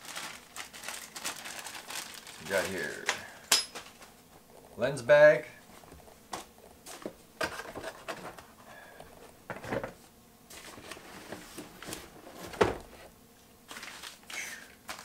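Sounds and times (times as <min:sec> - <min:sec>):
packaging rustling: 0:00.0 - 0:04.2, 0:10.5 - 0:12.8, 0:13.7 - 0:15.0.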